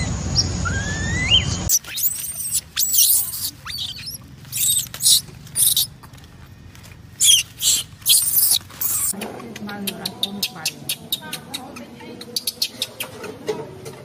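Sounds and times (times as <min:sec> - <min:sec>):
infant monkey screaming: 0:00.6 - 0:05.9, 0:07.2 - 0:09.2.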